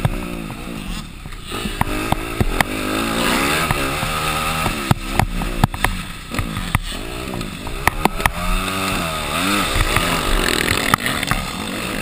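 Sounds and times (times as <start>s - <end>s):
motorbike engine revving: 0.0s - 12.0s
sharp knocks: 3.6s - 9.0s.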